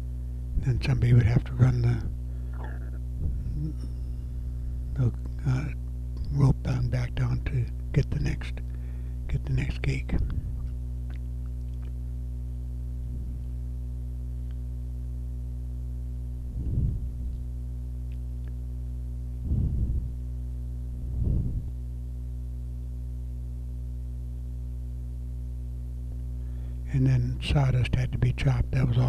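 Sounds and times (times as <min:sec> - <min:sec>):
electrical hum: 0:00.0 - 0:29.0
short low thumps: 0:02.0 - 0:05.4, 0:10.0 - 0:10.7, 0:16.3 - 0:17.4, 0:19.4 - 0:20.2, 0:21.0 - 0:21.8.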